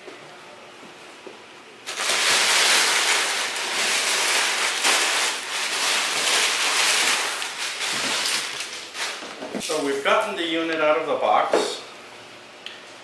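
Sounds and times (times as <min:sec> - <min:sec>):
packing paper rustling and crinkling: 0:01.9 - 0:10.3.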